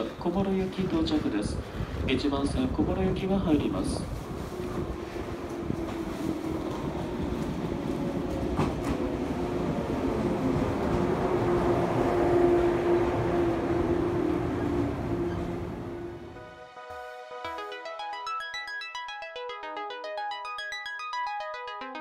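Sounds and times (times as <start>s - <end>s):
steady tone over train: 2.6s - 16.7s
electric train running past: 2.8s - 16.6s.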